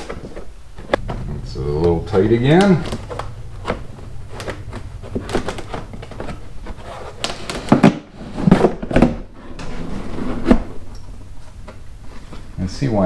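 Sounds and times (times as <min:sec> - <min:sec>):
liner rubbing and scraping: 0:00.3 - 0:12.6.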